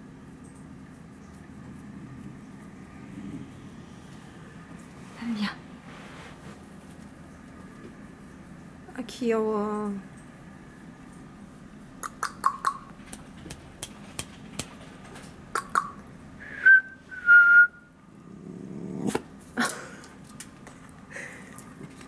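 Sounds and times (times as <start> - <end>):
chirping mouth sounds: 12.0 - 13.0, 15.6 - 16.1
person whistling high notes: 16.5 - 17.8.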